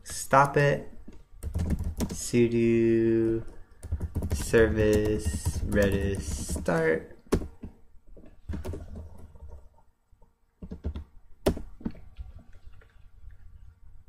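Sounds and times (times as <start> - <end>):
computer keyboard typing: 0.4 - 2.4, 3.1 - 7.7, 8.5 - 9.7, 10.6 - 12.9.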